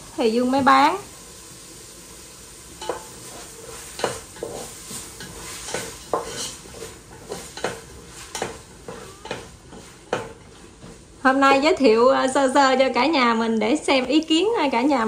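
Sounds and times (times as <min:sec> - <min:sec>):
food sizzling in a pan: 0:00.0 - 0:15.0
spoon scraping and knocking pan: 0:02.8 - 0:11.8.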